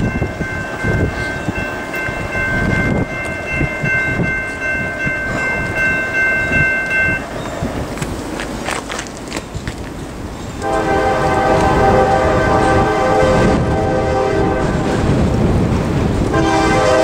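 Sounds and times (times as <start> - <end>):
train horn chord: 10.6 - 15.0, 16.3 - 17.0.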